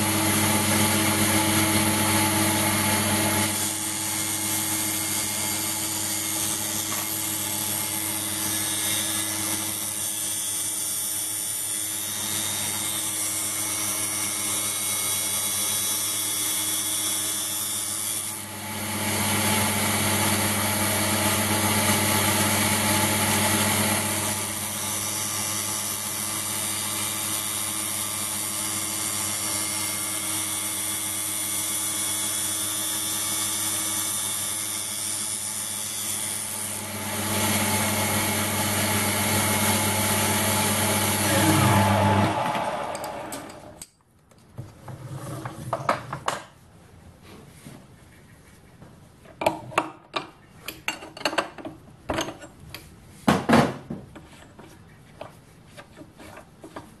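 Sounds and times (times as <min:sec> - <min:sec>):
motor hum and whine: 0:00.0 - 0:43.9
grinding wheel on steel: 0:39.9 - 0:43.9.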